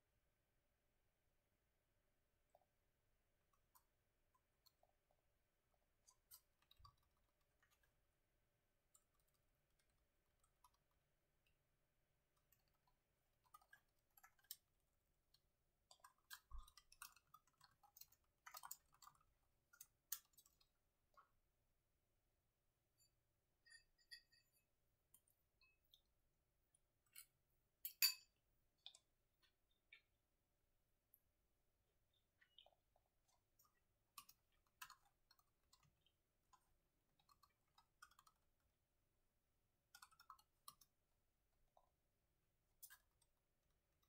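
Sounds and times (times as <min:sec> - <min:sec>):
laptop keyboard typing: 0:08.8 - 0:11.5, 0:12.2 - 0:21.2, 0:32.5 - 0:38.9, 0:39.8 - 0:41.3.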